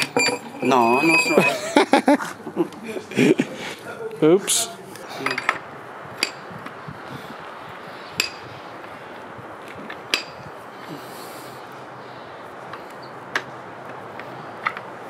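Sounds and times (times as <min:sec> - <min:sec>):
metal chisel clinking on concrete: 0:00.0 - 0:01.6
steady background noise: 0:00.0 - 0:15.0.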